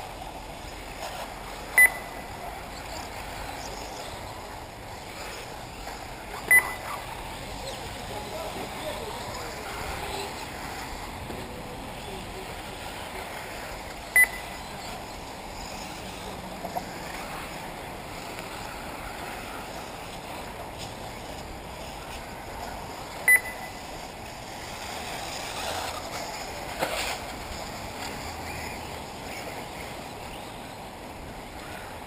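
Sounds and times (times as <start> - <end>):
steady background hiss: 0.0 - 32.0
short electronic beeps: 1.8 - 2.2, 6.4 - 7.0, 14.1 - 14.7, 23.2 - 23.9.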